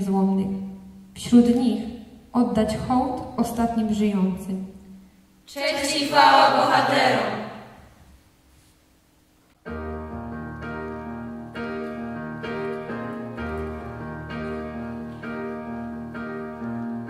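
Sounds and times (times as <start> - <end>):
keyboard piano chords: 9.6 - 17.0.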